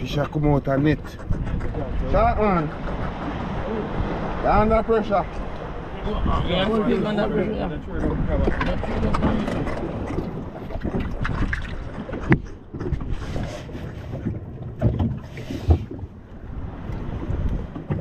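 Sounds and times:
sea noise: 0.0s - 18.0s
wind buffeting microphone: 0.0s - 18.0s.

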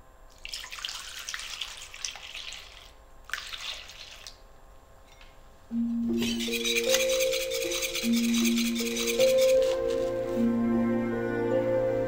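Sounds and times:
milk pouring into a bowl: 0.3s - 4.4s.

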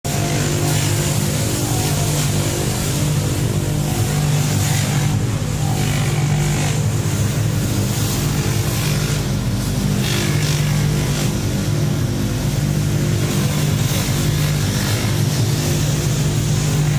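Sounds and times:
workshop machinery humming: 0.0s - 16.9s.

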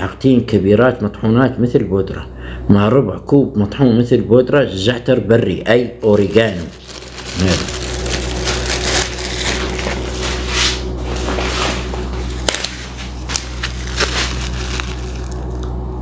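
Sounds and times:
plastic packaging crinkling: 6.0s - 15.7s.

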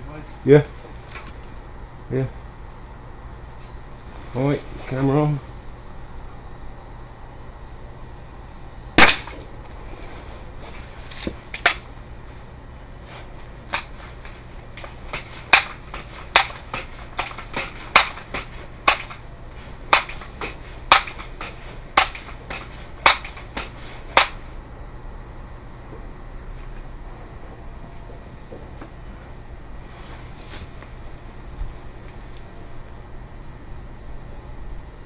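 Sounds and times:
air rifle crack: 9.0s - 9.5s, 19.9s - 24.5s.

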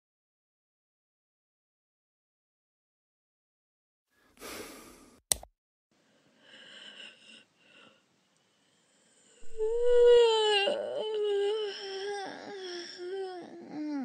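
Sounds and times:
soft breathy noises: 4.2s - 5.2s, 6.0s - 14.0s
sharp click: 5.3s - 5.5s
wavering high vocal sound: 9.4s - 14.0s.

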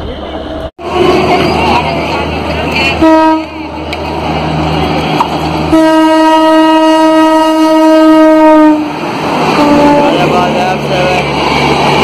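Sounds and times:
train rumble: 0.0s - 12.0s
locomotive horn blasts: 2.8s - 3.8s, 5.7s - 9.0s, 9.6s - 10.3s.

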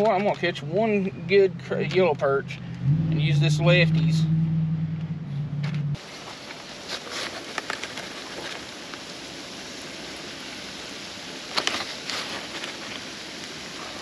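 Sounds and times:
oil popping and crackling: 0.0s - 2.8s, 6.0s - 14.0s
fish sizzling in oil: 6.0s - 14.0s.

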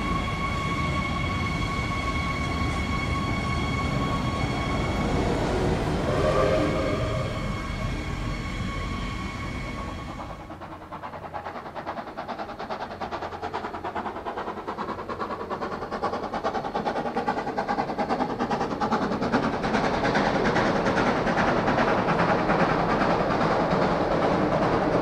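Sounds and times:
steam locomotive exhaust chuffs: 0.0s - 25.0s.

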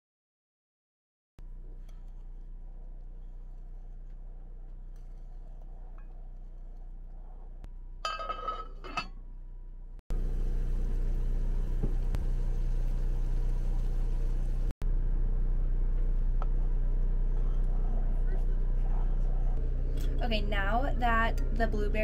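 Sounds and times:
pot simmering and boiling: 1.4s - 8.9s, 10.1s - 15.2s
steady low hum: 1.4s - 22.0s
wooden spoon stirring: 1.6s - 8.8s
ringing clink: 8.0s - 9.1s.

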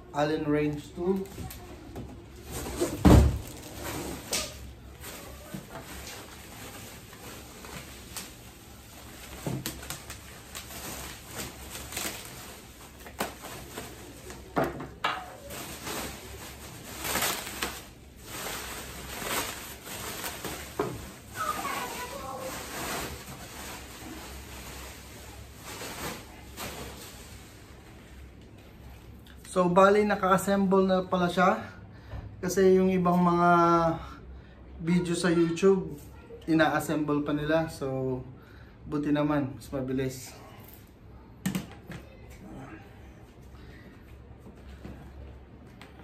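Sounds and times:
bubble wrap rustling: 0.6s - 28.9s.

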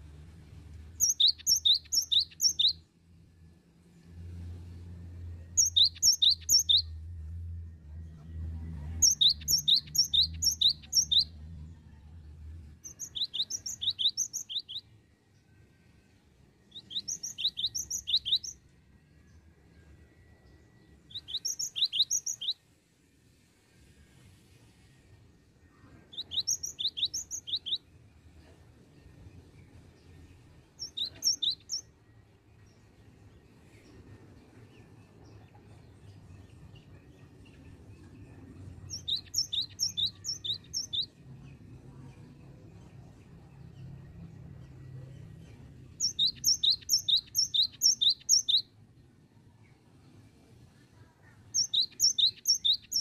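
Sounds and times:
bird singing rapid high notes: 1.0s - 2.8s, 5.6s - 7.0s, 9.0s - 11.4s, 12.9s - 14.9s, 16.7s - 18.6s, 21.1s - 22.6s, 26.1s - 27.8s, 30.8s - 31.9s, 38.9s - 41.1s, 46.0s - 48.7s, 51.6s - 53.0s.

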